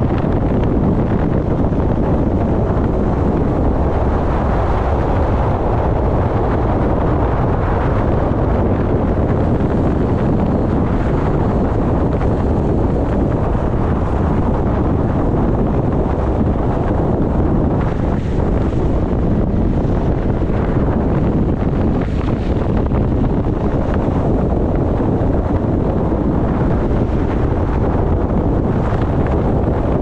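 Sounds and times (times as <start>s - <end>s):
wind rumble on microphone: 0.0s - 30.0s.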